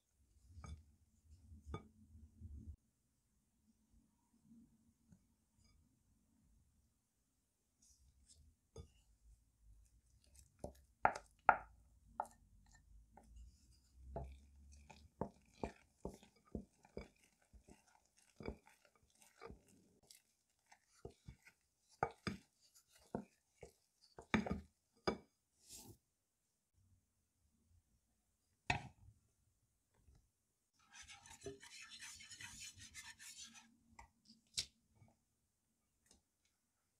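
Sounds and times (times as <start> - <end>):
spoon stirring thick batter: 7.8 - 26.0, 30.7 - 34.8.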